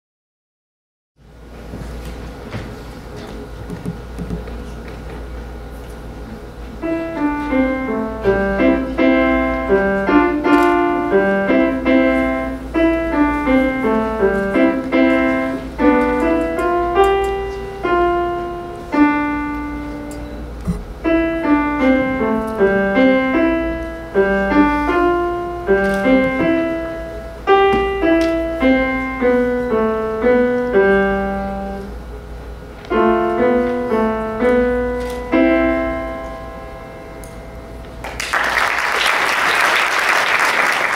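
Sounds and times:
solo piano piece: 6.8 - 32.2, 32.8 - 38.0.

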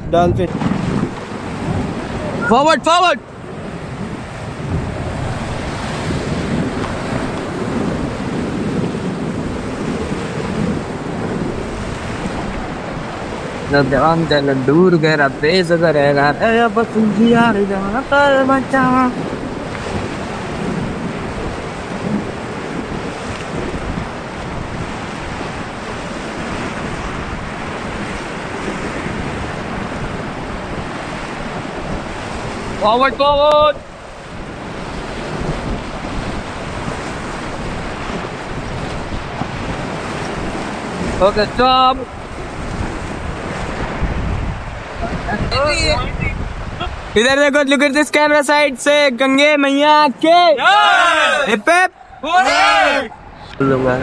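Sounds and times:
wind buffeting microphone: 0.0 - 54.0
whitewater rapids rushing: 0.2 - 54.0.

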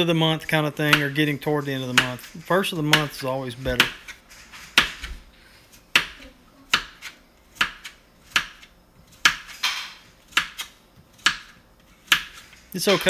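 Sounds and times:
knife slicing zucchini: 5.7 - 13.0.

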